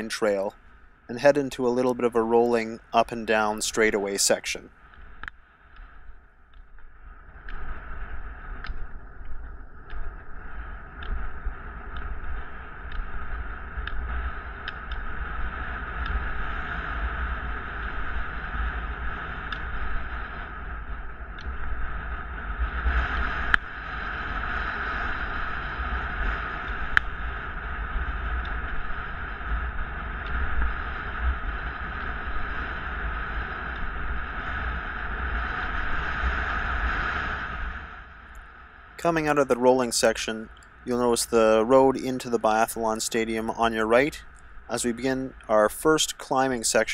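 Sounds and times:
wind rumbling on microphone: 0:00.0 - 0:46.9
rolling on asphalt: 0:04.6 - 0:39.4
faint ticks: 0:04.8 - 0:37.3, 0:40.4 - 0:41.0, 0:43.9 - 0:45.6.

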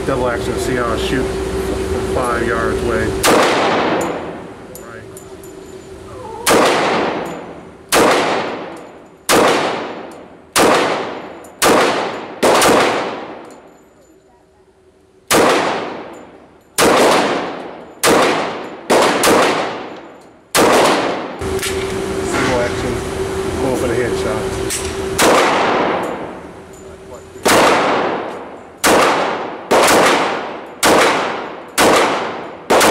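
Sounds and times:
pistol shots with echo: 0:03.2 - 0:04.4, 0:06.5 - 0:13.6, 0:15.3 - 0:21.4, 0:25.2 - 0:26.3, 0:27.4 - 0:32.9.

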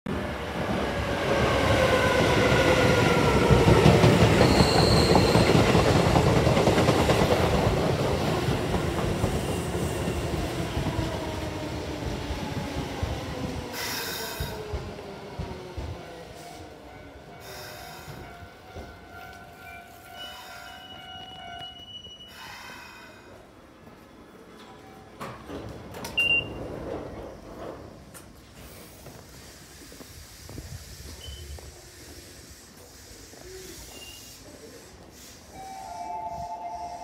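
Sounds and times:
train wheels rumbling on track: 0:00.1 - 0:21.8
high brake squeal: 0:04.2 - 0:05.8, 0:20.2 - 0:23.0, 0:31.2 - 0:31.6, 0:33.4 - 0:37.0.

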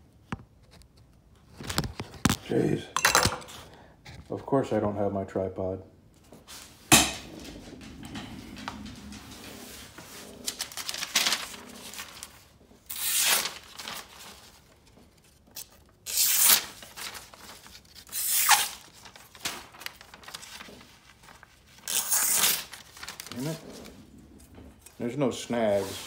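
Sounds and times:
machete slicing paper: 0:12.9 - 0:14.1, 0:15.6 - 0:19.6.

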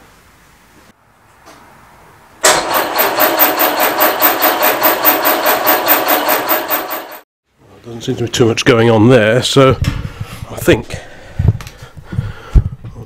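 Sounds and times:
engine cranking on starter motor: 0:02.4 - 0:07.2.

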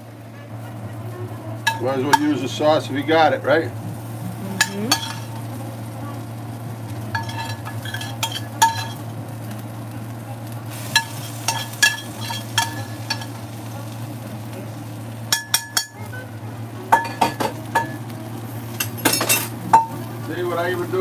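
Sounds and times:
food sizzling on a griddle: 0:00.0 - 0:21.0
steady low hum: 0:00.0 - 0:21.0
spoon clinking against pan: 0:01.6 - 0:02.4, 0:04.6 - 0:05.4, 0:07.1 - 0:09.0, 0:10.9 - 0:13.4, 0:15.3 - 0:16.0, 0:16.9 - 0:18.0.

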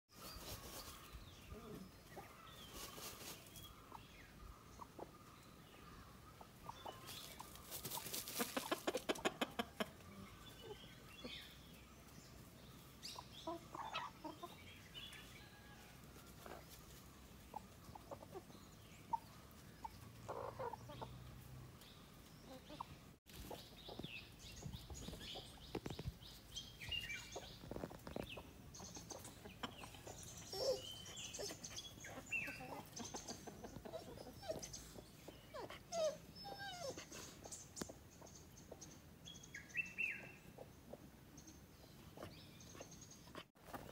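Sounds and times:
hens clucking: 0:06.0 - 0:11.6, 0:12.4 - 0:15.2, 0:16.1 - 0:21.4, 0:22.4 - 0:24.2, 0:26.9 - 0:36.3.

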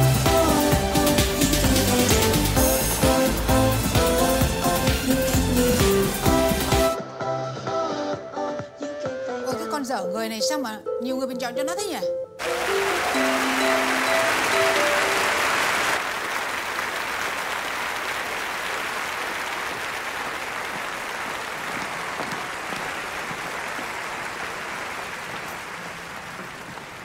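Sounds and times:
audience applauding: 0:12.4 - 0:27.0.

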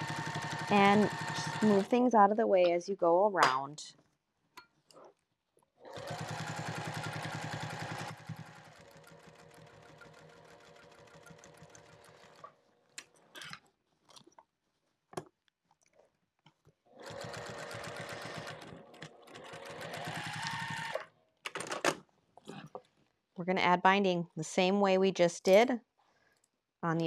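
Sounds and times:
sewing machine stitching: 0:00.0 - 0:02.0, 0:05.9 - 0:12.6, 0:17.0 - 0:21.1.

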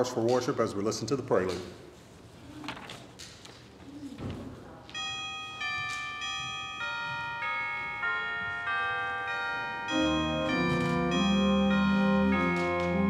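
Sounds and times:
organ playing: 0:05.5 - 0:13.0.

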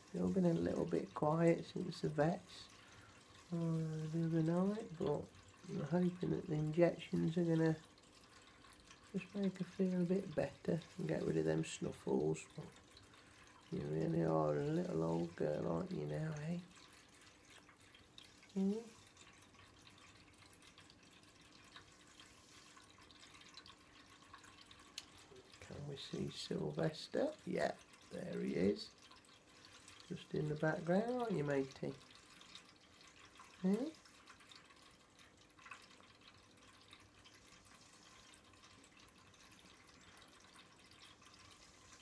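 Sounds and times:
faint room hiss: 0:00.0 - 0:42.0
faint steady hum: 0:00.0 - 0:42.0
faint ticks: 0:16.6 - 0:26.4.

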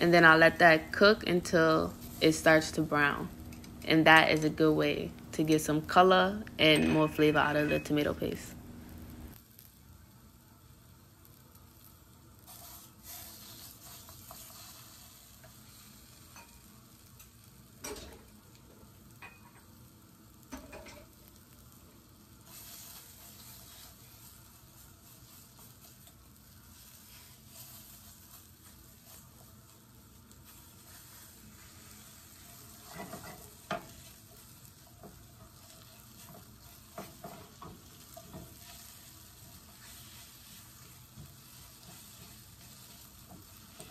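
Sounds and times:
vegetables sizzling in frying pan: 0:00.0 - 0:06.6, 0:07.2 - 0:43.9
spatula scraping pan: 0:12.4 - 0:18.2, 0:22.4 - 0:43.9.

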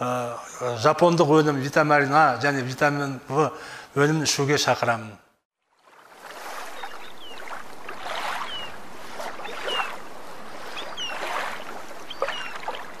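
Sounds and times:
ocean waves washing in: 0:05.7 - 0:13.0.

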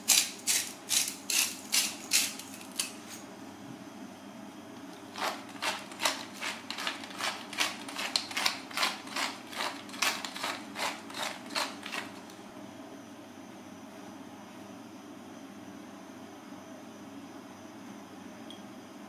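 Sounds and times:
pepper mill grinding: 0:00.0 - 0:03.2, 0:05.1 - 0:12.4.

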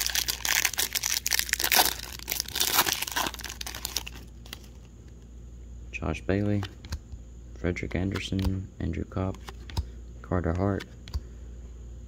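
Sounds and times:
wrapper tearing and crinkling: 0:00.0 - 0:04.7.

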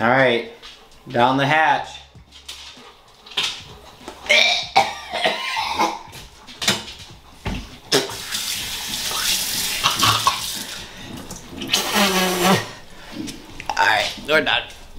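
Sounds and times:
man's choked vocal noises: 0:04.3 - 0:06.1, 0:11.2 - 0:12.8.

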